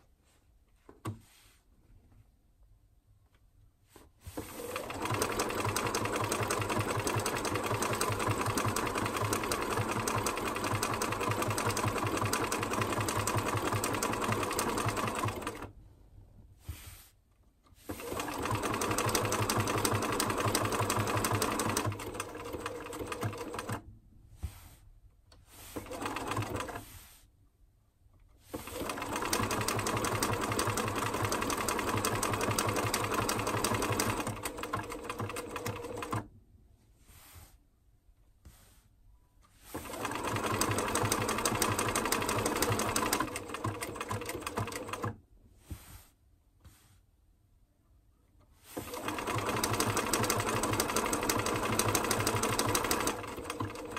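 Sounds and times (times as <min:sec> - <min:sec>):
sewing machine needle rattling: 0:04.5 - 0:15.7, 0:17.9 - 0:23.8, 0:28.6 - 0:36.2, 0:39.8 - 0:45.2, 0:48.8 - 0:53.9.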